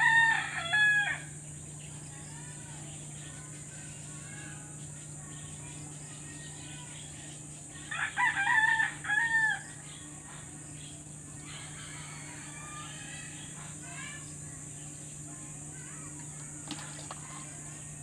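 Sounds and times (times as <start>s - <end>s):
rooster crowing: 0.0s - 1.3s, 7.9s - 9.7s, 11.4s - 13.3s
low background hum: 0.0s - 18.0s.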